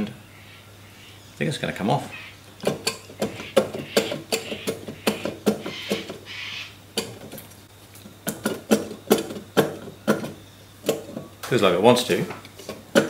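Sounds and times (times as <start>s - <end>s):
sharp metal knocks and clacks: 2.6s - 6.2s, 8.3s - 11.2s, 12.8s - 13.0s.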